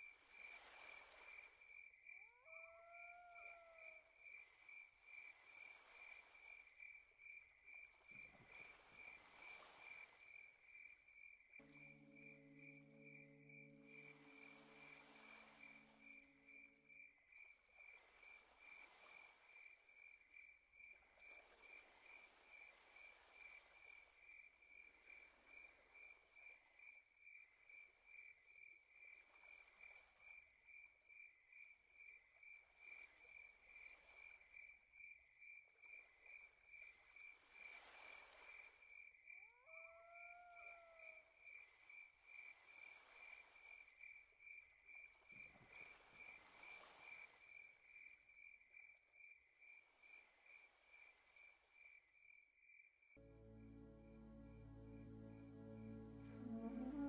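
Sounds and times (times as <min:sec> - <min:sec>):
cricket chirping: 0:00.0 - 0:57.0
low sustained tone: 0:53.2 - 0:57.0
short rising call: 0:55.7 - 0:57.0.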